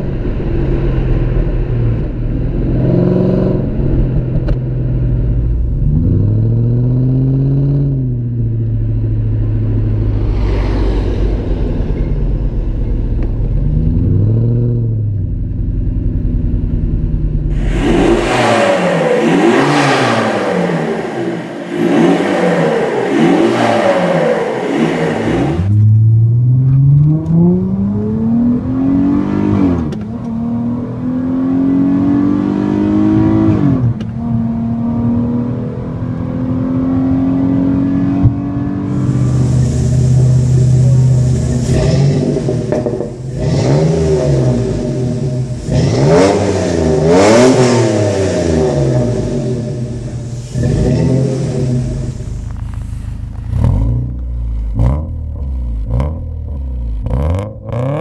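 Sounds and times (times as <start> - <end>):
car accelerating through gears: 17.5 - 52.4
engine revving in blips: 17.5 - 52.8, 53.4 - 58.0
engine idling: 39.1 - 43.4, 49.6 - 53.6.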